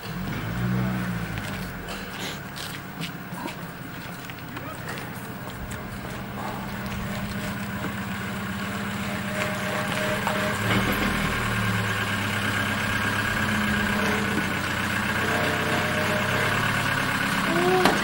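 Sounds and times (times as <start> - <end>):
vehicle engine idling: 0.0 - 18.0.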